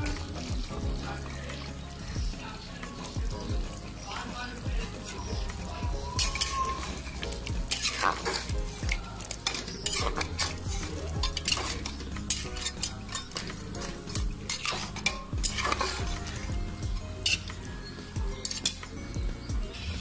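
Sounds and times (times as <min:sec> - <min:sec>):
metal spoon scraping pot: 0:05.2 - 0:19.0.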